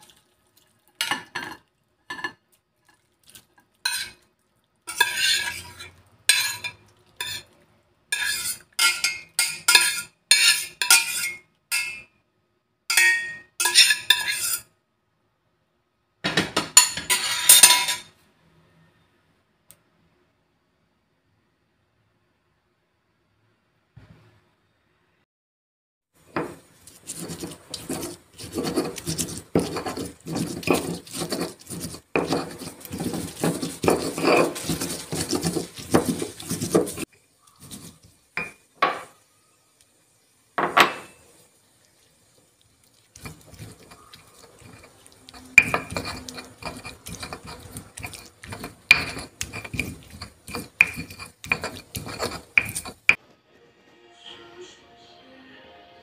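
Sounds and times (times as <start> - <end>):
stone pestle grinding in mortar: 4.9 - 7.4, 8.2 - 11.4, 26.3 - 38.6, 43.1 - 53.2.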